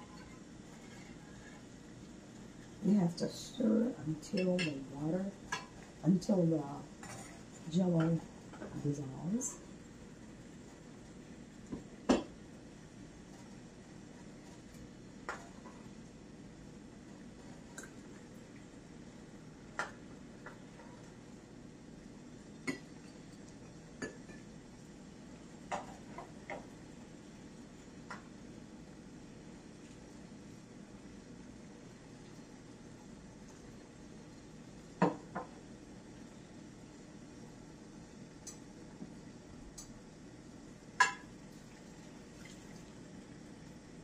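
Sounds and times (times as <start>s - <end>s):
hot water pouring: 41.5s - 43.1s.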